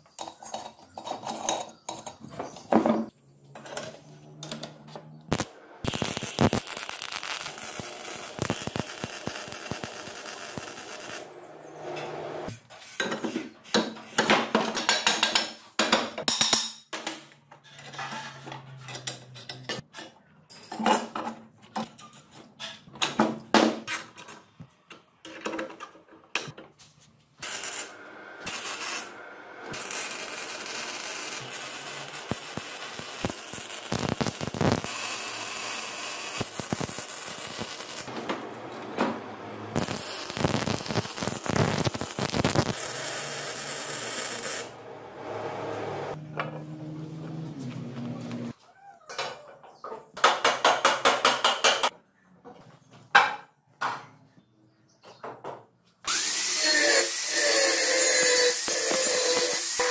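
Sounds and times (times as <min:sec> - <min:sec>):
welder arc crackling hiss: 0:05.3 - 0:11.3, 0:27.4 - 0:29.1, 0:29.7 - 0:38.1, 0:39.7 - 0:44.7.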